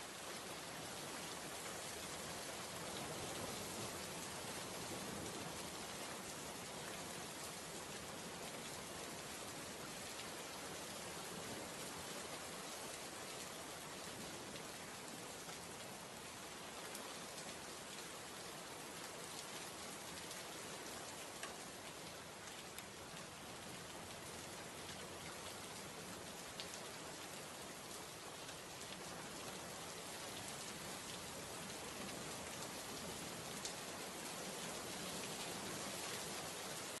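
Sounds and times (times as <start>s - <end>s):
heavy rain falling: 22.4s - 37.0s.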